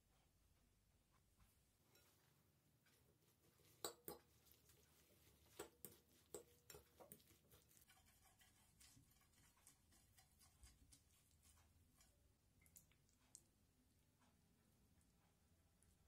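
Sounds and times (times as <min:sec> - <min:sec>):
fork clinking against glass bowl: 0:03.8 - 0:04.3
fork scraping bowl: 0:03.8 - 0:12.2.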